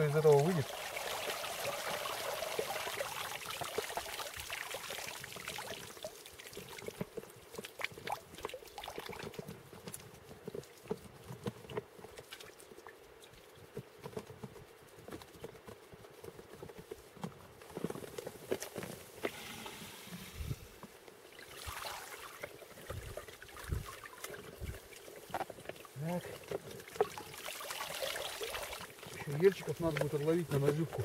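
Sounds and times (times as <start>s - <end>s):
water trickling and pouring: 0.0s - 9.5s, 19.2s - 31.0s.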